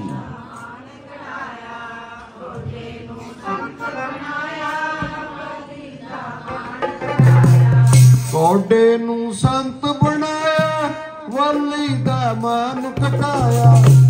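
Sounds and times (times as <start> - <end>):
devotional chanting: 0.0 - 14.0
harmonium: 3.4 - 5.6.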